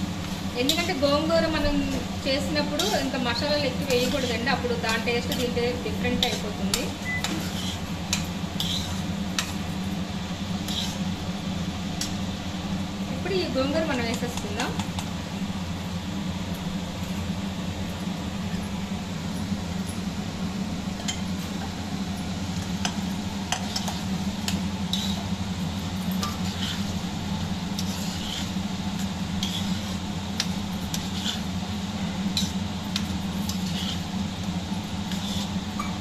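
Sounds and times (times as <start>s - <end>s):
steady low hum: 0.0s - 36.0s
spoon scraping metal pan: 2.6s - 7.9s, 8.6s - 9.5s, 10.6s - 11.1s, 26.2s - 27.0s, 27.8s - 28.6s, 29.4s - 31.5s, 32.4s - 34.1s.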